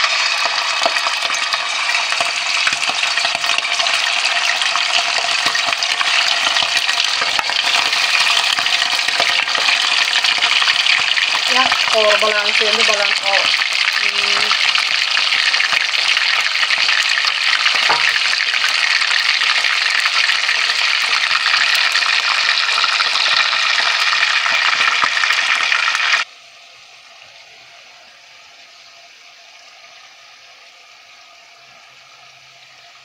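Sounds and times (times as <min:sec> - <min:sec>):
liver sizzling in hot oil: 0:00.0 - 0:33.0.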